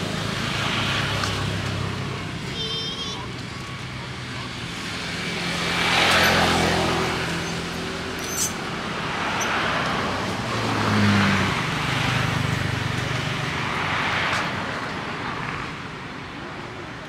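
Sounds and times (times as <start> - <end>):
steady traffic background: 0.0 - 17.0
vehicles passing: 0.0 - 17.0.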